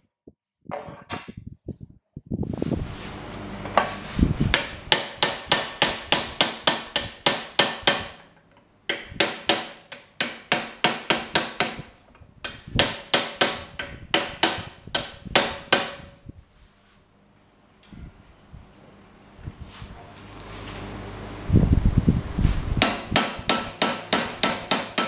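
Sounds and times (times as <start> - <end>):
hammer striking hot steel: 22.8 - 25.0.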